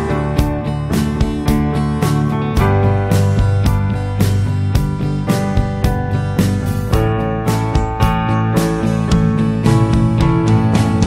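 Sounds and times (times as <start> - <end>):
strummed acoustic guitar: 0.0 - 11.0.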